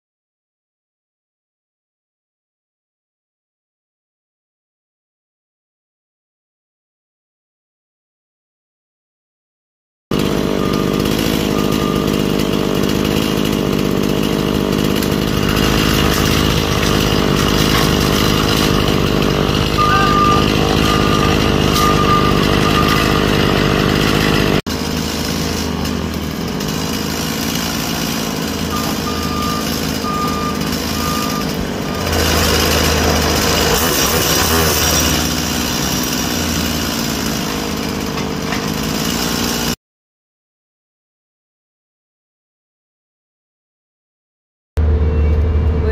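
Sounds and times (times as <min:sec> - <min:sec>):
diesel engine running: 0:10.1 - 0:39.8, 0:44.8 - 0:45.9
high beeps: 0:19.8 - 0:23.1.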